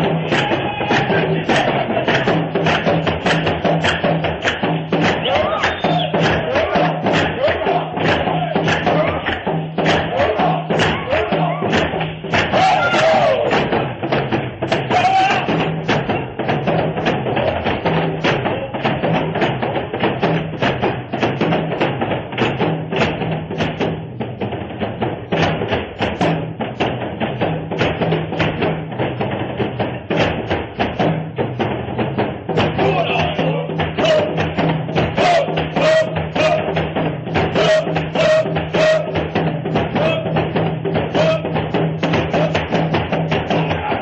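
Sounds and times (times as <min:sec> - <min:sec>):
person chanting: 0:00.0 - 0:02.4, 0:05.2 - 0:13.7, 0:32.6 - 0:36.9, 0:37.5 - 0:42.8, 0:43.4 - 0:44.0
fast drumming: 0:00.0 - 0:44.0
tribal dance music: 0:00.0 - 0:44.0.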